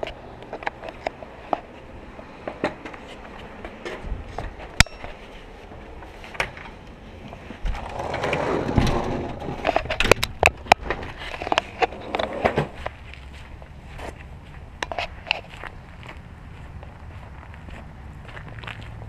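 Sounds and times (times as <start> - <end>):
storm door pushed open: 7.7 - 9.6.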